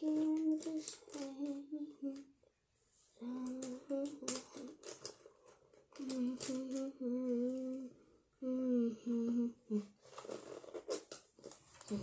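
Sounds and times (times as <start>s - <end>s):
girl humming: 0.0s - 2.3s, 3.2s - 4.7s, 6.0s - 10.0s.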